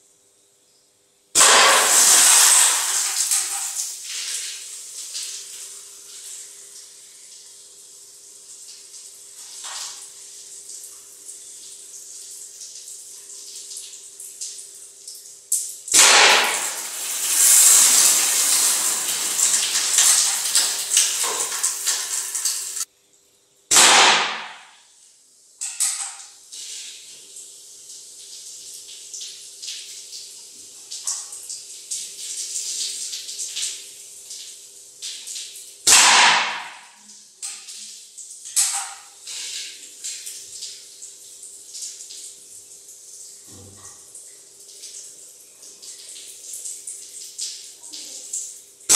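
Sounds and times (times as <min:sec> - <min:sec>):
water spraying from bottle holes: 0:01.4 - 0:07.5, 0:08.4 - 0:22.9
loud gush of spraying water: 0:01.4 - 0:07.6, 0:15.9 - 0:22.9, 0:26.6 - 0:27.2, 0:38.6 - 0:40.8.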